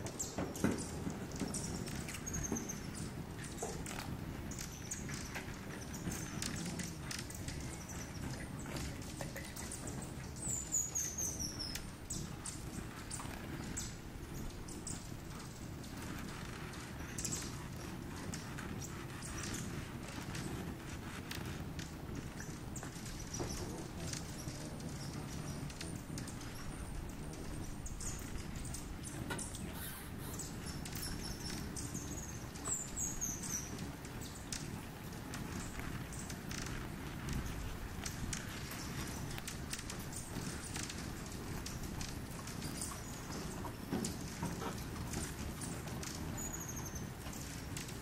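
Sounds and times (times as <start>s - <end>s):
hummingbirds chipping: 0.0s - 48.0s
descending squeaky bird notes: 29.4s - 33.8s.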